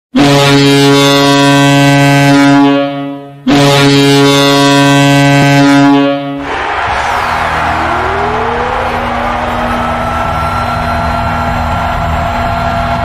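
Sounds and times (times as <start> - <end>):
goal horn blasts: 0.1 - 6.6.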